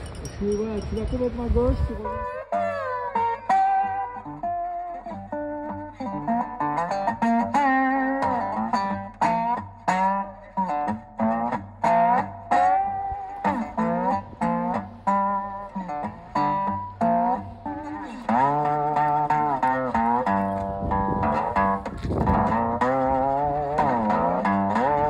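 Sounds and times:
guitar picking bending notes: 0.0s - 25.0s.

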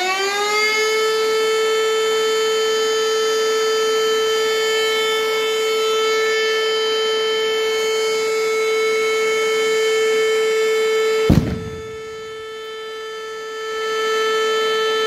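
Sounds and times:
air horn blast: 10.4s - 15.0s.

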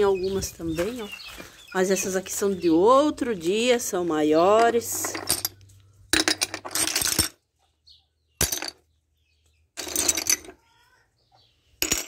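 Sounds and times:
clam shells clinking on wood: 4.5s - 7.4s, 8.4s - 8.8s, 9.8s - 10.6s, 11.8s - 12.0s.

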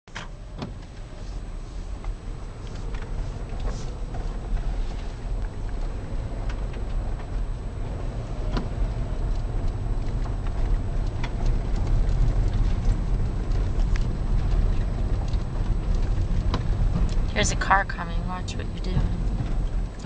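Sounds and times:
car rumble from inside cabin: 0.1s - 20.0s.

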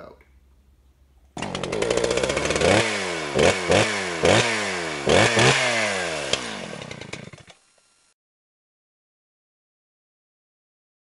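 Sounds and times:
small gasoline engine revving: 1.4s - 8.2s.

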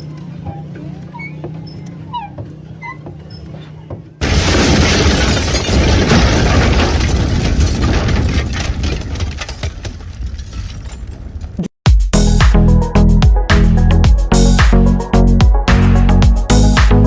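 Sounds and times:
crumbling rock debris: 4.2s - 11.6s.

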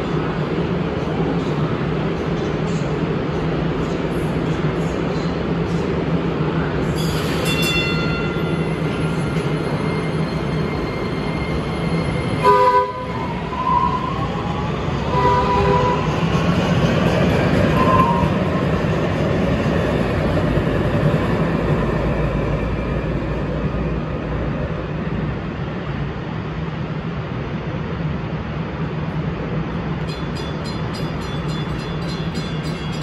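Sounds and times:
train wheels rumbling on rails: 0.0s - 33.0s
train horn toot: 12.4s - 14.0s, 15.0s - 16.2s.

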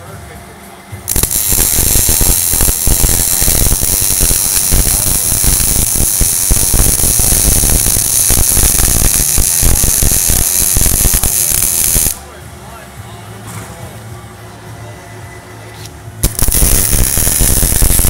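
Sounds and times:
welding arc crackling: 1.1s - 12.2s, 16.2s - 18.0s.

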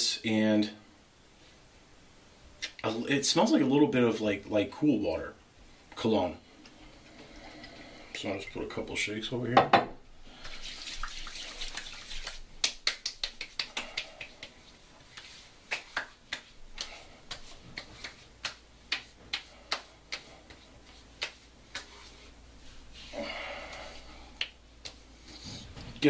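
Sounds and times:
hands slapping face: 10.4s - 22.3s, 24.4s - 25.0s.

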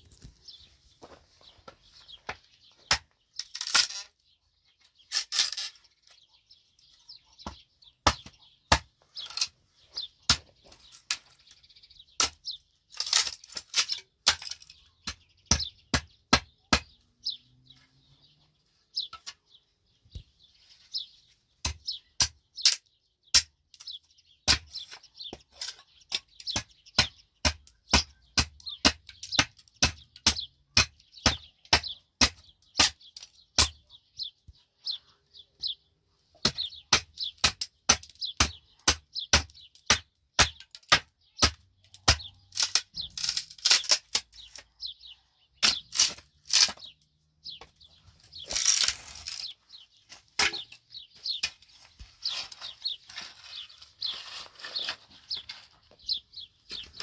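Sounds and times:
birds chirping: 0.0s - 57.0s
hammer striking wooden boards: 36.4s - 42.3s.

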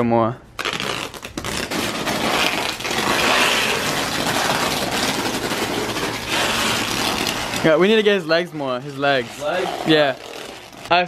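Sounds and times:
duct tape ripping off roll: 0.6s - 11.0s.

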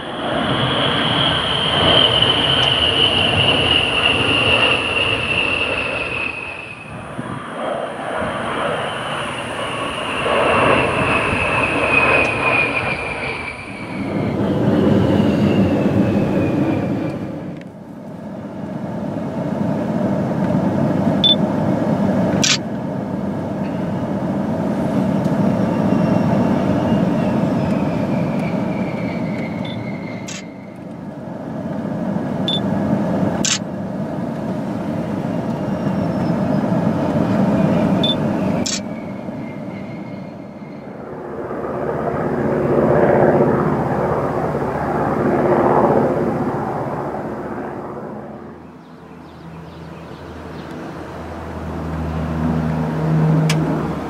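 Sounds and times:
high jet whine falling in pitch: 0.0s - 22.7s, 23.3s - 54.0s
jet engines rumbling: 0.0s - 54.0s
sharp clicks: 22.4s - 22.6s, 33.4s - 33.6s, 38.6s - 38.9s.

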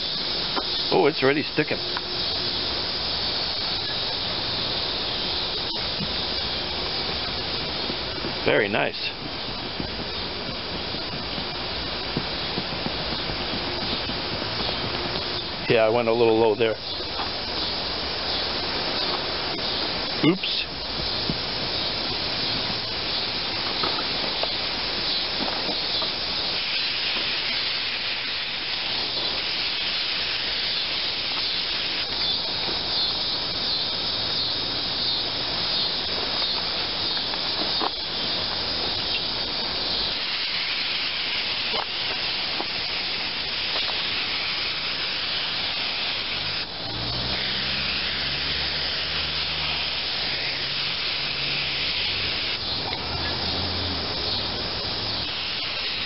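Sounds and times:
aerosol spray hissing: 16.8s - 56.0s.

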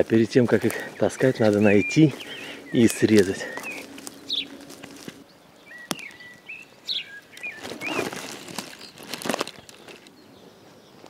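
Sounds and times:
footsteps crunching on forest floor: 0.0s - 10.1s
small birds chirping: 0.0s - 11.0s
whistled notes: 1.0s - 6.4s.

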